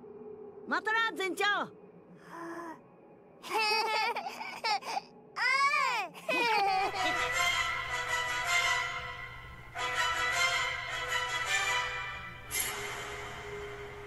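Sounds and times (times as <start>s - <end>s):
outro music with sustained notes: 6.9s - 14.0s.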